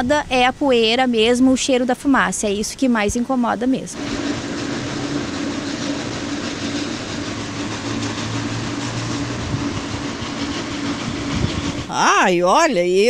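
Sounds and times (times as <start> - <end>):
machinery drone with low hum: 3.9 - 11.9.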